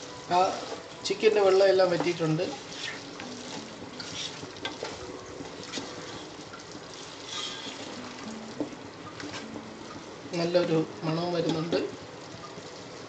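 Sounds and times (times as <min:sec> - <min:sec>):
chicken sizzling in a pan: 0:00.0 - 0:13.0
spatula scraping a pan: 0:02.0 - 0:05.0, 0:05.7 - 0:06.4, 0:07.0 - 0:08.0.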